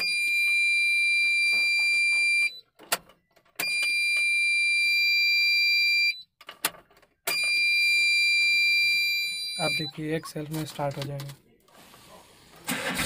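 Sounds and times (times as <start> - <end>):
dashboard warning buzzer: 0.0 - 2.6.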